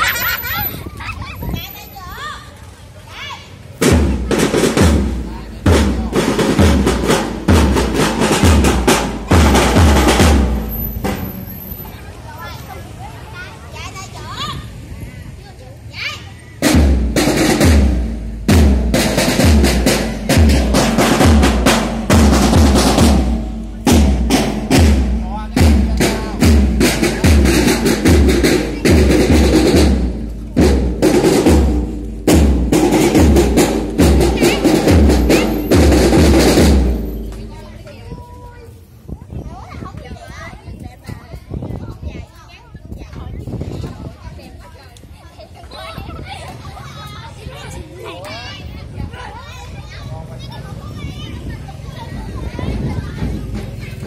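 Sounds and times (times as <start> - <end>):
deep drum thuds: 3.8 - 11.5, 16.6 - 37.9
snare drums playing marching rhythm: 3.8 - 11.8, 16.6 - 37.9.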